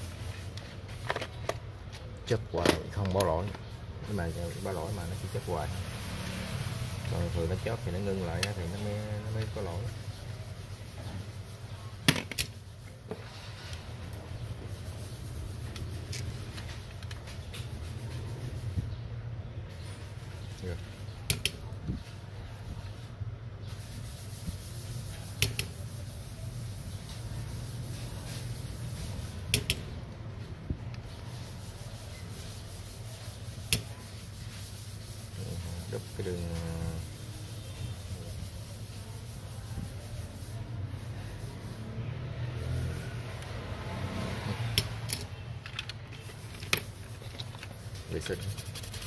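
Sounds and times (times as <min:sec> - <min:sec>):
handling noise of tools: 0:00.2 - 0:03.6, 0:44.6 - 0:49.0.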